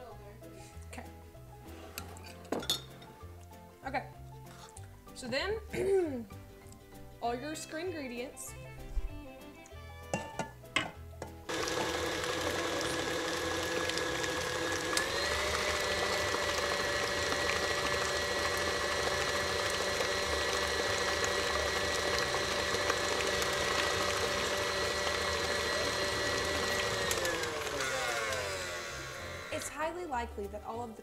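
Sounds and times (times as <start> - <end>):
stand mixer running: 11.5 - 29.8.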